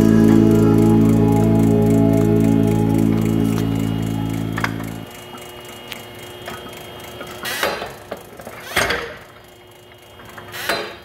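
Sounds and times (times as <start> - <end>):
faint steady hum: 0.0 - 5.1.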